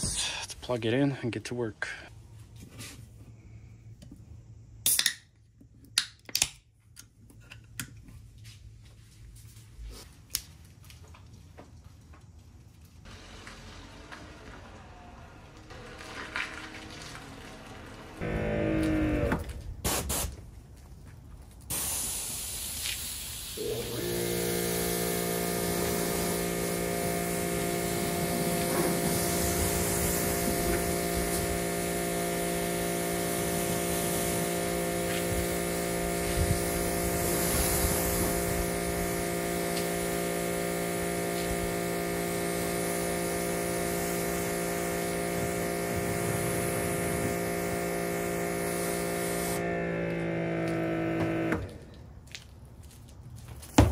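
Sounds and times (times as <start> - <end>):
pressure washer motor humming: 13.1 - 19.5, 23.6 - 51.9
water spray hissing: 21.7 - 49.6.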